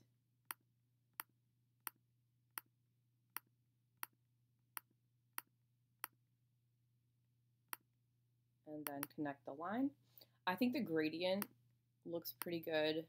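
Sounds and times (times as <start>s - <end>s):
computer mouse clicking: 8.8s - 9.2s.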